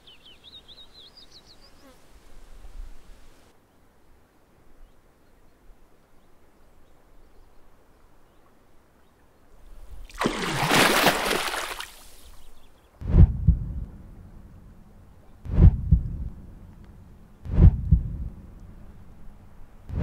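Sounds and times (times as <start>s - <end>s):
rush of water bubbles: 10.0s - 12.3s
deep heavy thuds: 13.0s - 14.2s, 15.4s - 16.7s, 17.4s - 18.5s.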